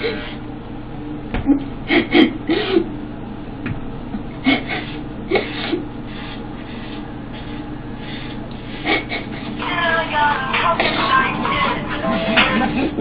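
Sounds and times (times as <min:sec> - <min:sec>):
blades scraping over scalp: 0:04.6 - 0:13.0.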